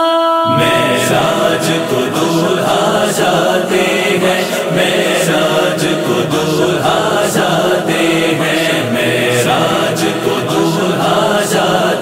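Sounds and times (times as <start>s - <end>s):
voices chanting in chorus: 0.4s - 12.0s.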